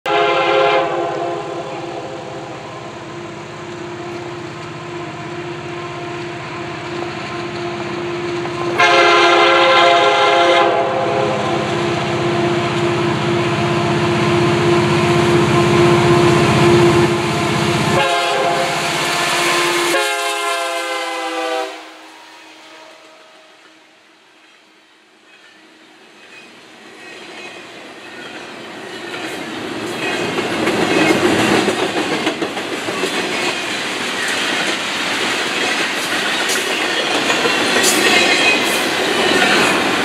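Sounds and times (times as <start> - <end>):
locomotive horn: 0.0 - 24.1
train rumble: 0.1 - 23.8, 26.2 - 40.0.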